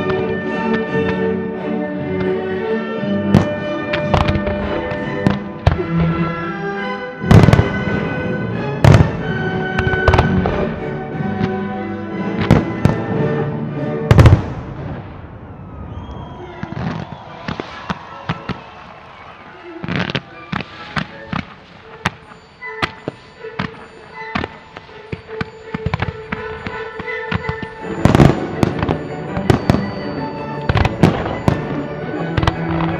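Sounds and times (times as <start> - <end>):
music: 0.0 - 15.2, 15.8 - 32.9
firework shells bursting: 17.0 - 32.9.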